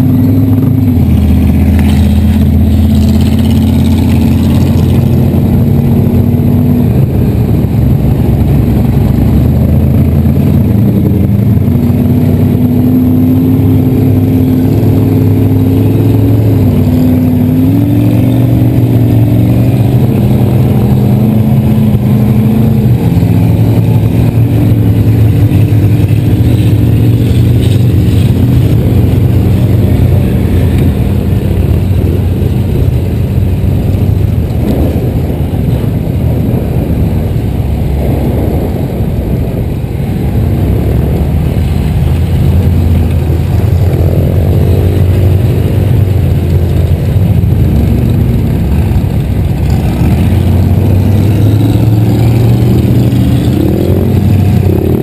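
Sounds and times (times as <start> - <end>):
engines revving: 0.0 - 55.0
golf cart engine running: 0.0 - 55.0.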